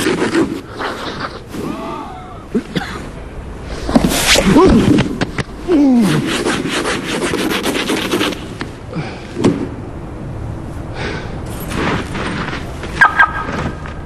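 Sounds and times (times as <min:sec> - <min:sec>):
brush scraping snow off car: 0:06.0 - 0:08.6, 0:11.5 - 0:13.0.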